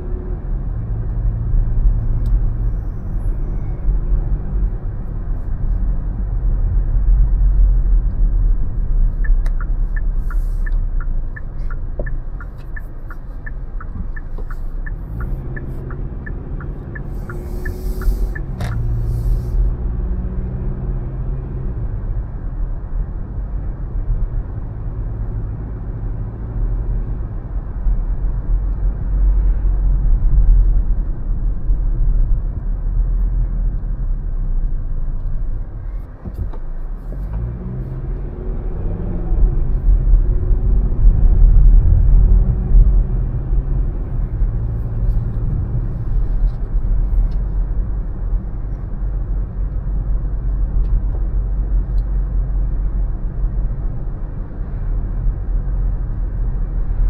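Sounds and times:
car engine and road rumble: 0:00.0 - 0:57.0
turn signal ticking: 0:07.0 - 0:19.8.

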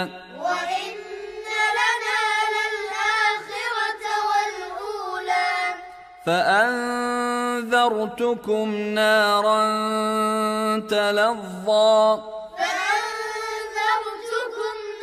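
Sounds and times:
adult voice chanting: 0:00.0 - 0:00.7, 0:06.2 - 0:12.5
child chanting: 0:00.0 - 0:05.9, 0:12.5 - 0:15.0.

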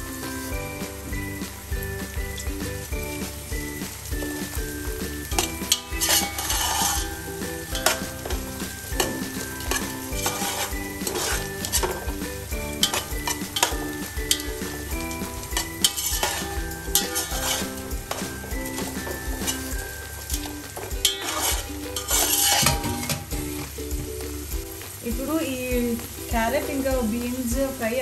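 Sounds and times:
vegetables sizzling in oil: 0:00.0 - 0:28.0
metal spoon scraping pot: 0:05.4 - 0:08.4, 0:09.0 - 0:12.1, 0:12.8 - 0:14.8, 0:15.6 - 0:23.3.

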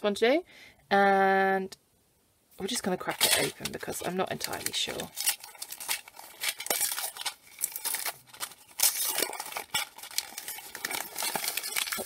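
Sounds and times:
wrapping paper crinkling and tearing: 0:02.7 - 0:12.0.

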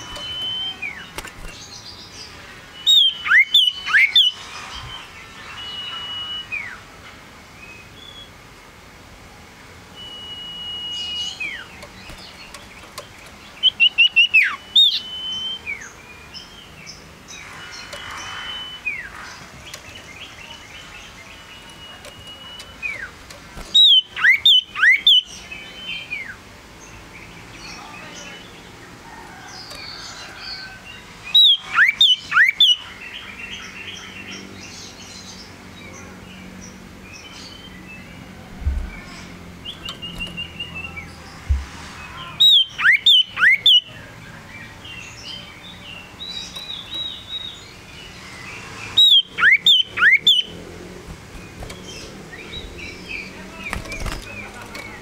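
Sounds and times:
soft bird calls: 0:00.0 - 0:06.8
bird chirping in bursts: 0:00.0 - 0:06.9, 0:09.8 - 0:55.0
bird whistling long notes: 0:02.8 - 0:06.8, 0:10.0 - 0:11.7.

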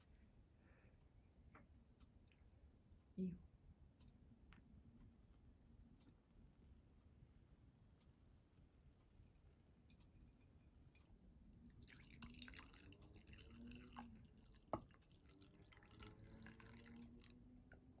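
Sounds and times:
coffee pouring into mug: 0:09.6 - 0:17.4.

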